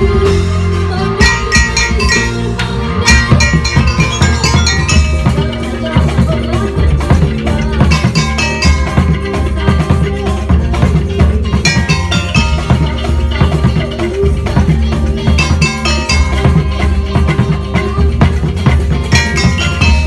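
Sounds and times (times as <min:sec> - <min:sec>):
heavy bass: 0:00.0 - 0:20.0
bright short melodic notes: 0:01.2 - 0:05.8, 0:07.9 - 0:09.4, 0:11.6 - 0:13.0
drum beat: 0:01.2 - 0:20.0.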